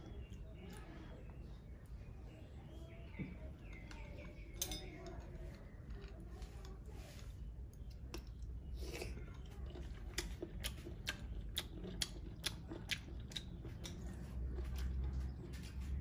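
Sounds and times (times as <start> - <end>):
wet clicks and smacks of eating: 7.6 - 15.9.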